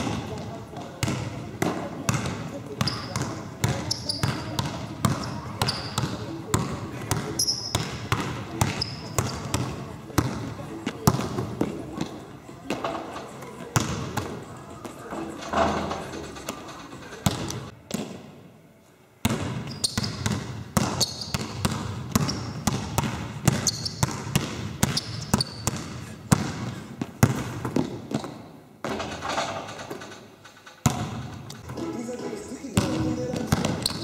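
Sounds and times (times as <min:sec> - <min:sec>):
shoe squeaks: 0:02.8 - 0:04.6, 0:05.2 - 0:06.3, 0:07.2 - 0:08.0, 0:08.6 - 0:09.5, 0:19.6 - 0:20.2, 0:20.9 - 0:21.4, 0:22.2 - 0:22.6, 0:23.5 - 0:24.0, 0:24.8 - 0:25.7, 0:33.2 - 0:34.0
basketball bouncing on wooden floor: 0:19.3 - 0:30.0, 0:30.8 - 0:31.4, 0:32.8 - 0:34.0.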